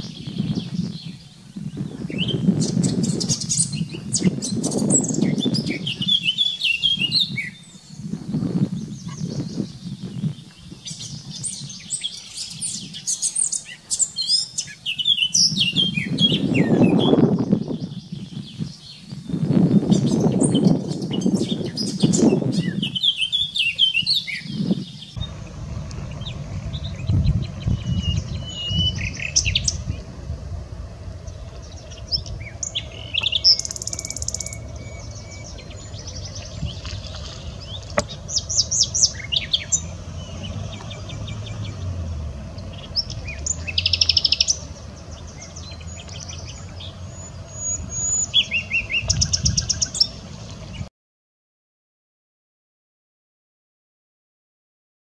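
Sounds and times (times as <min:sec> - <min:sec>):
nightingale singing: 0:00.0 - 0:50.9
songbird song: 0:00.0 - 0:50.9
low rumble: 0:25.0 - 0:50.9.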